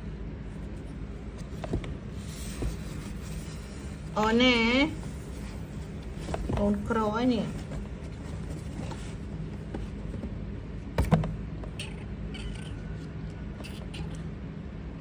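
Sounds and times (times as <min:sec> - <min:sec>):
steady low hum: 0:00.0 - 0:15.0
handling noises in cardboard box: 0:00.6 - 0:04.1, 0:04.9 - 0:11.2.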